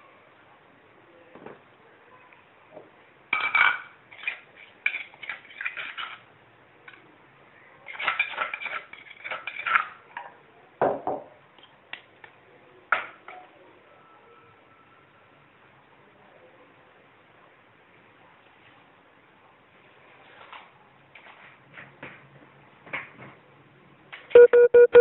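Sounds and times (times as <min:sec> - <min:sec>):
utensil scraping and clinking on mortar: 0:03.4 - 0:06.3, 0:07.9 - 0:10.0.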